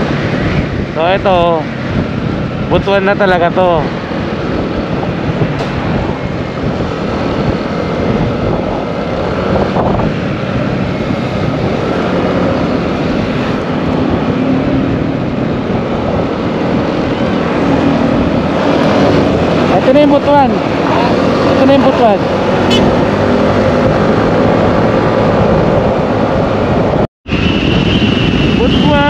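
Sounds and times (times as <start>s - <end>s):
motorcycle engine: 0.0s - 29.0s
road and wind noise: 0.0s - 29.0s.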